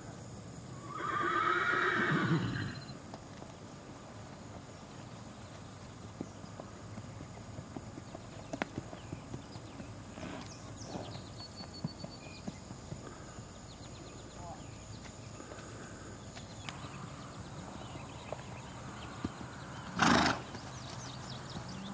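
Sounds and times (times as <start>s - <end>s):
insects chirping: 0.0s - 21.9s
horse hooves on grass and dirt: 0.9s - 21.9s.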